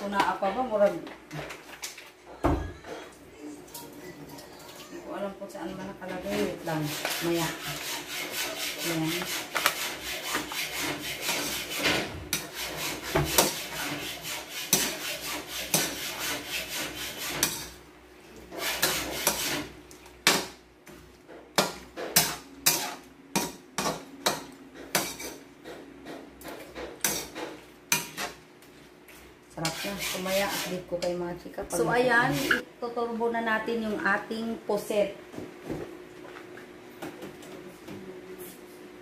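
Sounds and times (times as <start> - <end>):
metal turner scraping a wok: 6.1 - 17.8, 18.5 - 19.8, 21.6 - 24.0, 29.6 - 30.9.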